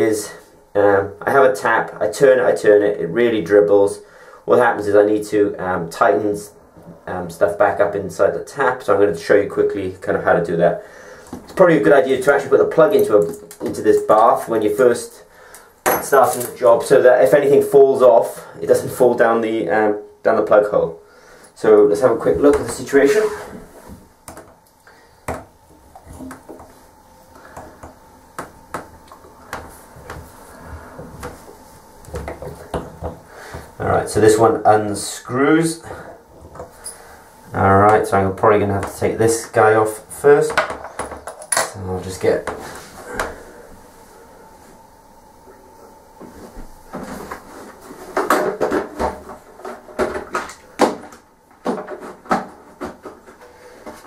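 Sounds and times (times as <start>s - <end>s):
hand tools clinking and knocking: 15.8s - 16.6s.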